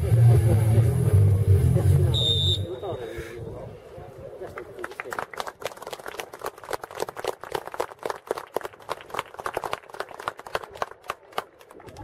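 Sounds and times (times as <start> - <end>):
people clapping: 4.4 - 12.0.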